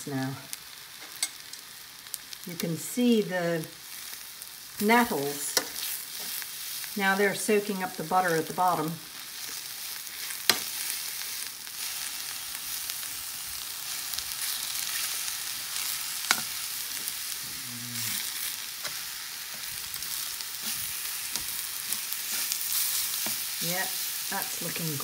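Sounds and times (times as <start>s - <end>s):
food sizzling in a frying pan: 0.0s - 25.0s
metal tongs clicking on pan: 1.1s - 1.6s.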